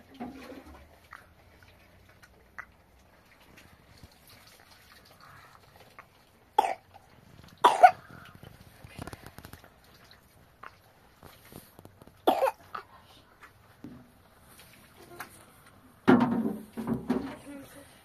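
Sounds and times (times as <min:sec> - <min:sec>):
water pouring into metal basin: 0:02.9 - 0:10.5
child coughing: 0:06.6 - 0:06.8, 0:07.6 - 0:08.0, 0:12.3 - 0:12.8
small knocks: 0:16.0 - 0:17.5.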